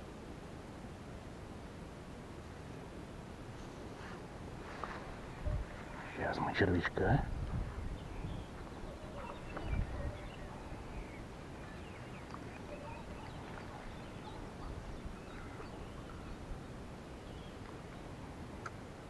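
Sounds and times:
steady low rumble: 3.2 - 18.6
faint bird chirps: 7.8 - 18.2.

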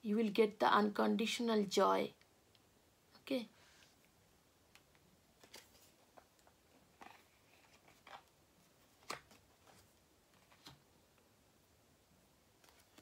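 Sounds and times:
cards rustling and tapping: 4.7 - 10.8.

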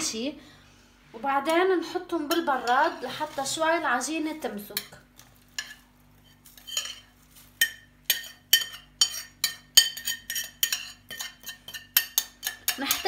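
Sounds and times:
crumbs sliding: 5.2 - 7.6.

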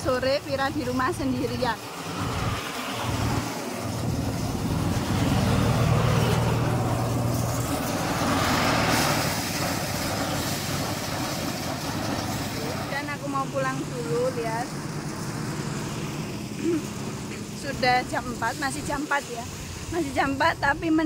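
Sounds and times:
thresher engine running: 0.0 - 20.5
loud rushing noise: 1.8 - 14.0.

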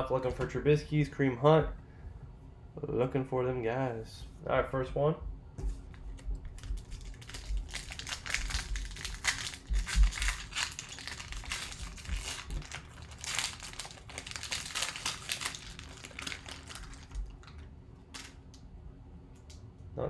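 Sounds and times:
foil wrapper crinkling and tearing: 6.5 - 18.4.

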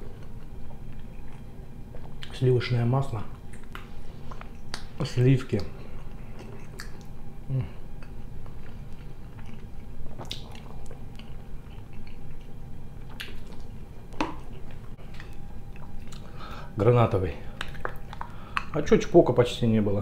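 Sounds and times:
person chewing food: 0.0 - 2.3, 3.3 - 16.5, 17.4 - 18.8
wet mouth smacks: 3.5 - 5.0, 6.4 - 7.1, 10.2 - 11.3, 17.6 - 18.8.

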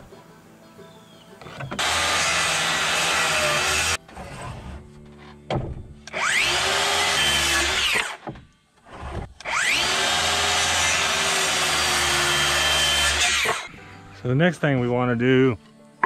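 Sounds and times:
circular saw cutting wood: 1.4 - 5.4, 6.1 - 13.8.

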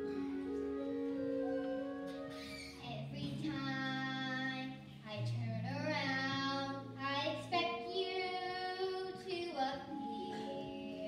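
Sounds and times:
sustained backing notes: 0.0 - 11.0
girl singing into a microphone: 2.6 - 11.0.

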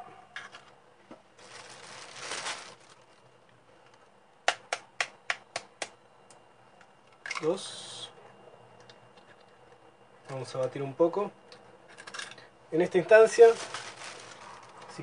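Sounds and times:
soft handling rustle: 1.1 - 4.1, 13.0 - 15.0.

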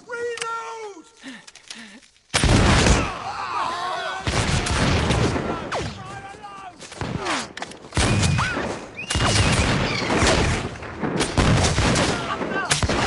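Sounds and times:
volley of musket shots: 6.9 - 13.0.

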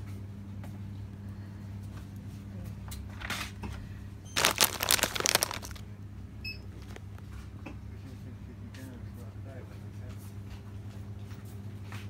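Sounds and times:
plastic packaging crinkling: 4.4 - 5.8, 6.7 - 7.2.

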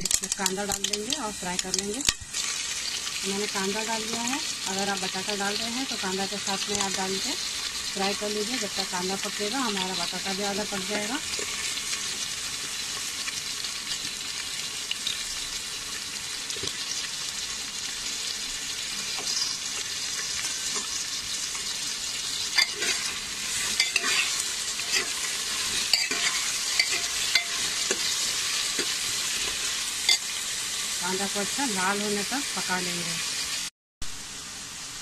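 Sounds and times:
vegetables sizzling in hot oil: 0.0 - 35.0
spoon scraping a pot: 22.5 - 30.3.

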